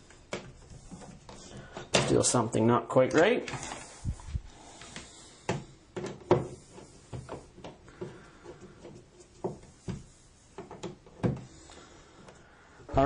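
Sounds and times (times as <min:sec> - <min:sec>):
switches clicking and knocking: 0:04.8 - 0:11.5.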